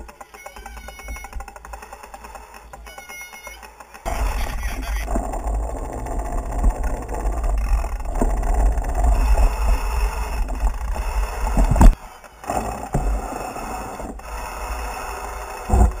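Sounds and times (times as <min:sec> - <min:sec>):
mountain bike running noise: 0:00.0 - 0:16.0
wind on microphone: 0:04.1 - 0:12.0.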